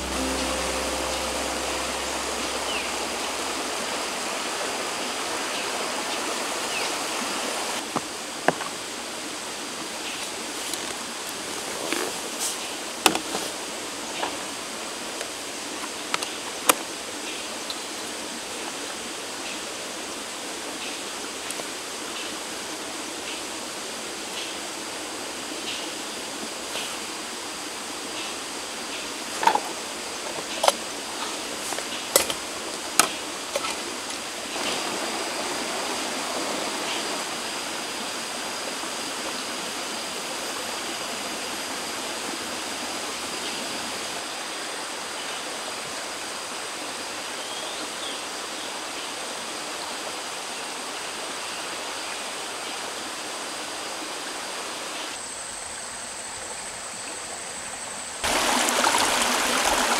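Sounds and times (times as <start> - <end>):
faint high tones: 0.0 - 5.2
flowing stream: 0.0 - 59.9
metal utensils clicking and knocking: 32.1 - 32.4.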